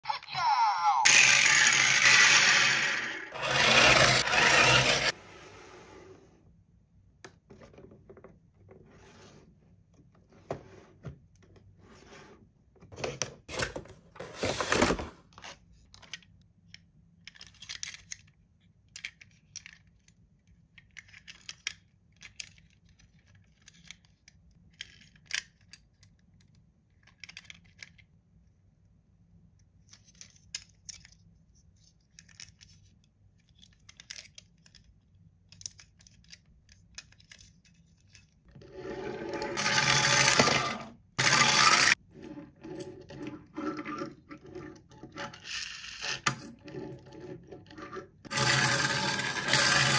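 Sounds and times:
toy packaging rustling and scraping: 0:01.1 - 0:06.4, 0:08.6 - 0:16.3, 0:17.2 - 0:26.1, 0:29.8 - 0:49.9.

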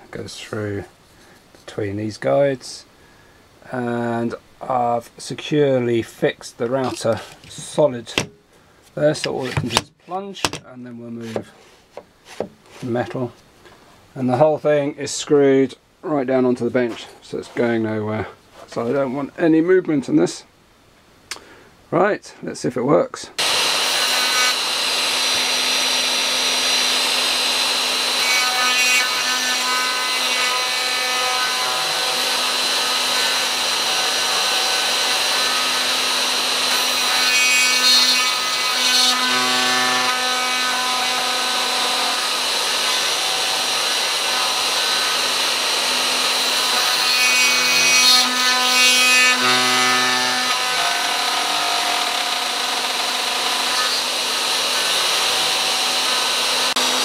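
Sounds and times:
router whining cutting metal: 0:23.4 - 0:57.0.

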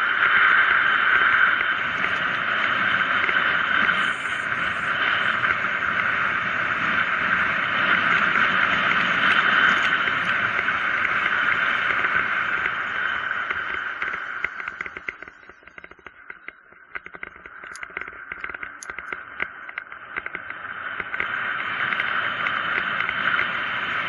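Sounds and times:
rushing wind: 0:00.0 - 0:15.9
bike tyres on asphalt: 0:00.0 - 0:24.0.

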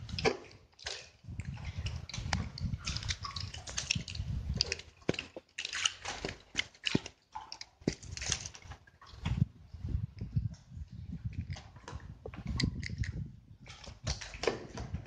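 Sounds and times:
water splashing: 0:00.0 - 0:09.6.

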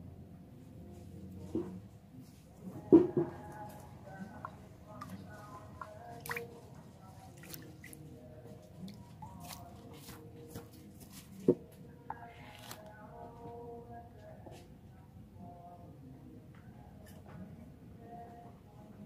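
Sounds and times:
water splashing and dripping: 0:04.4 - 0:08.1.

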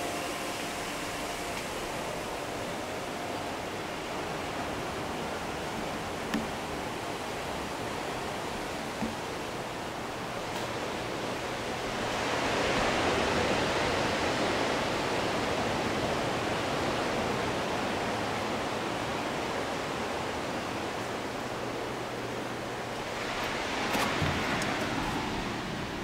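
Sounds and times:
ocean surf breaking on shore: 0:00.0 - 0:26.0.

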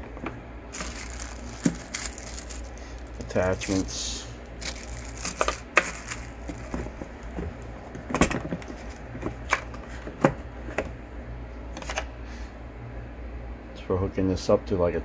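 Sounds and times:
steady low hum: 0:00.0 - 0:15.0
accessories clicking in plastic case: 0:04.6 - 0:06.9.

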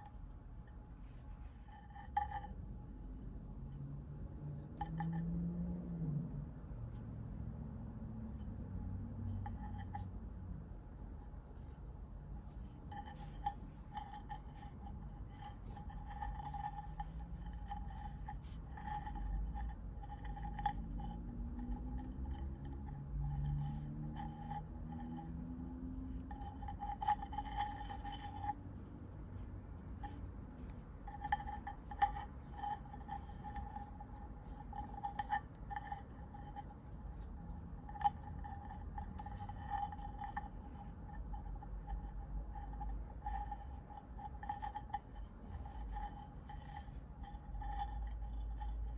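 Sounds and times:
faint steady hum: 0:00.0 - 0:48.9.

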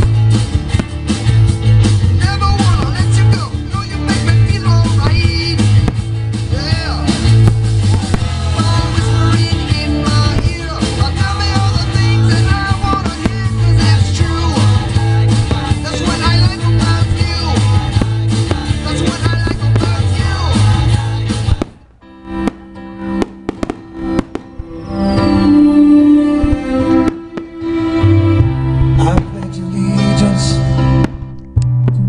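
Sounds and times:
loud rock music with singing: 0:00.0 - 0:21.9.

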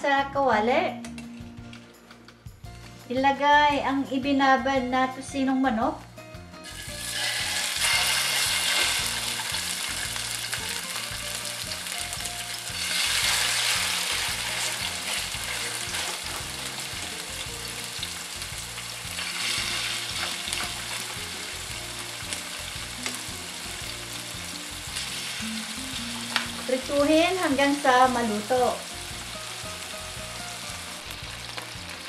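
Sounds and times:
chicken sizzling in hot oil: 0:06.6 - 0:32.0.

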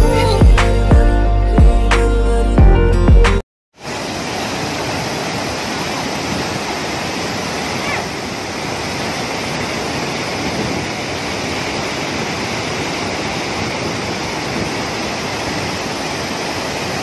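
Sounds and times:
waterfall rushing: 0:03.8 - 0:17.0.

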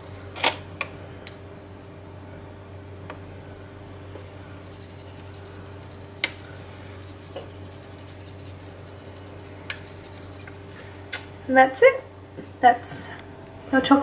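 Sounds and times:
steady low hum: 0:00.0 - 0:14.0
sugar sifting through sieve: 0:03.6 - 0:11.0.

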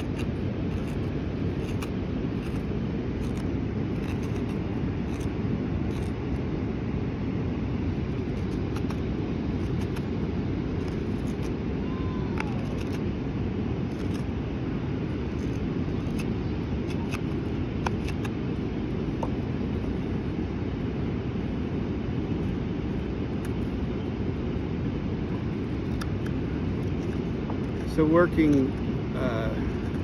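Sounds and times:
knife carving wood clicks: 0:15.4 - 0:18.3.

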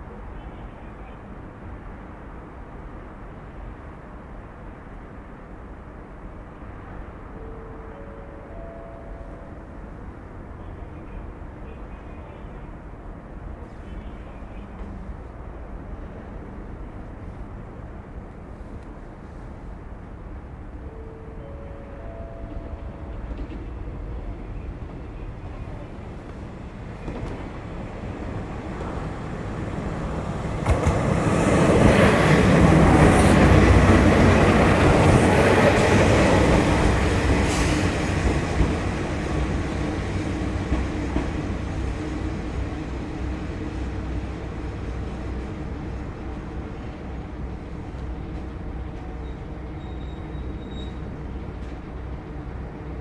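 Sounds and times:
diesel railcar passing: 0:00.0 - 0:53.0.

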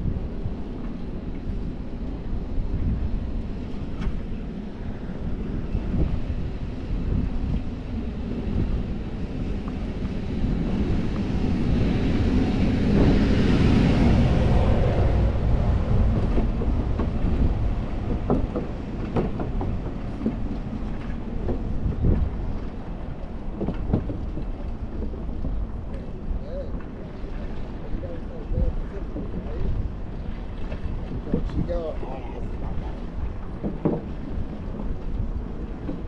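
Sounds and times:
wind noise on microphone: 0:00.0 - 0:36.0
knocks: 0:18.1 - 0:20.4.

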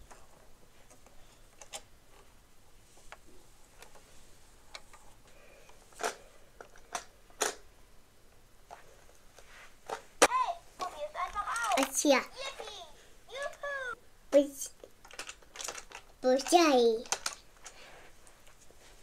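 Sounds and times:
plastic toy cars clicking: 0:05.6 - 0:07.6, 0:10.8 - 0:12.8, 0:14.8 - 0:17.8.

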